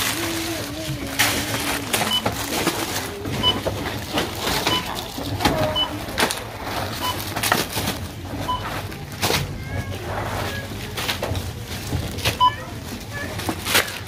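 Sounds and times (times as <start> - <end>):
groceries knocking and clattering: 0.0 - 14.0
barcode scanner beeping: 1.8 - 5.0, 5.6 - 6.1.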